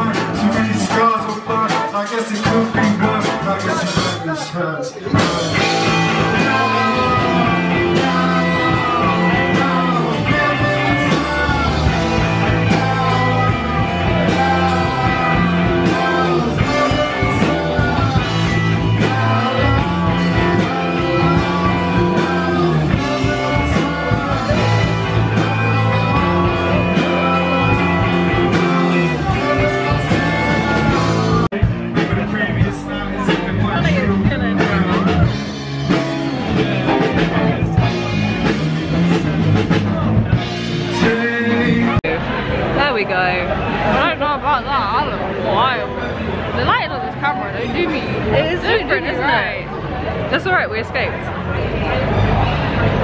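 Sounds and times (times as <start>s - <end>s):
person singing: 0.0s - 36.0s
live rock band playing: 0.0s - 53.0s.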